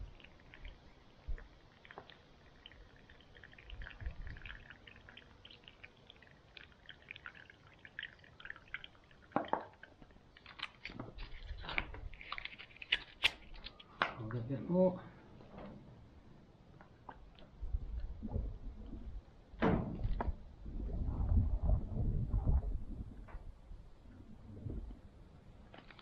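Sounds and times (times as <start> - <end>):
water trickling: 0.0 - 13.9
plastic bag crinkling: 10.4 - 13.9, 25.8 - 26.0.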